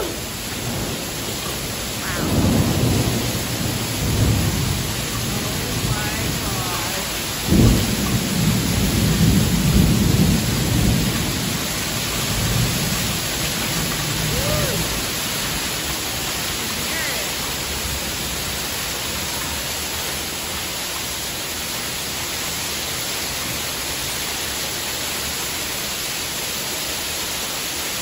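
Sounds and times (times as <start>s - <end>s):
deep rolling thunder: 0.0s - 16.6s
heavy rain pouring: 0.0s - 28.0s.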